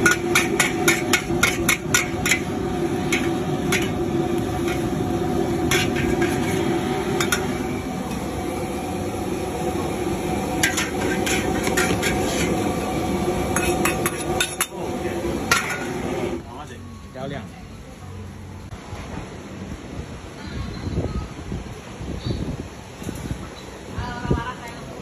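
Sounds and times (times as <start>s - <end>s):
metal spatula clanking on wok: 0.0s - 7.6s, 10.6s - 12.7s, 13.4s - 14.8s, 15.4s - 16.0s
gas burner rushing: 0.0s - 16.8s.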